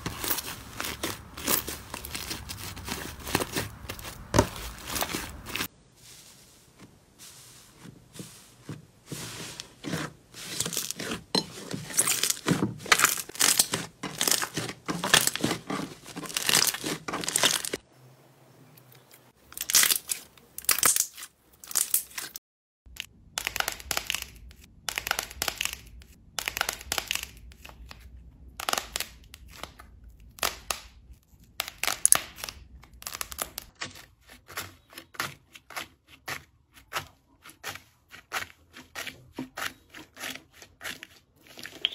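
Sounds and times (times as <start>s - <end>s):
slime squelching: 0.0s - 5.7s, 6.3s - 17.8s, 31.6s - 41.9s.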